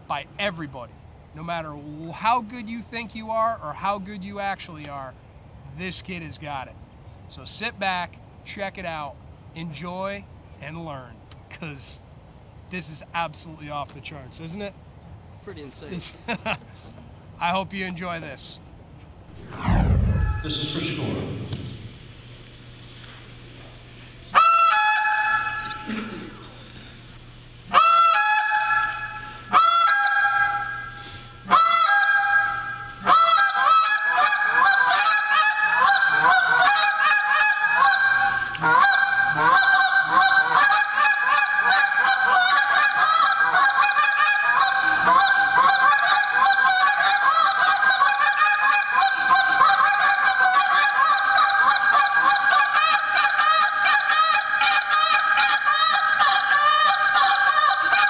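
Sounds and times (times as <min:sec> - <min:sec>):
goose call honks and clucks: 0:24.4 - 0:25.8, 0:27.7 - 0:30.9, 0:31.5 - 0:58.0.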